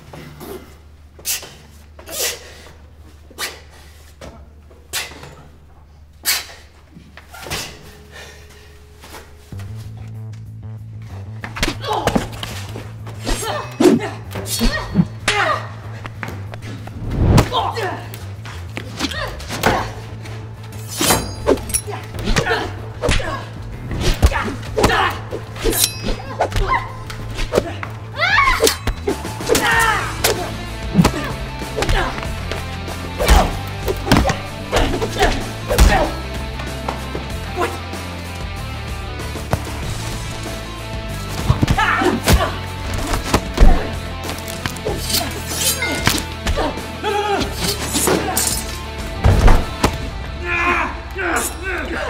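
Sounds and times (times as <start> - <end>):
fight knocks and swishes: 16.0 - 17.7, 18.6 - 27.9, 28.5 - 37.3, 41.2 - 46.8
grunts and yells: 21.8 - 25.6, 26.2 - 36.5, 37.3 - 38.0, 41.5 - 44.0, 44.8 - 48.7, 50.3 - 52.0.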